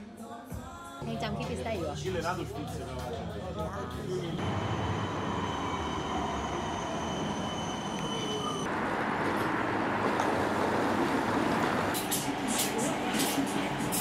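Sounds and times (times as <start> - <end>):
street noise hum: 1.5 - 14.0
tram electrical whine: 3.9 - 14.0.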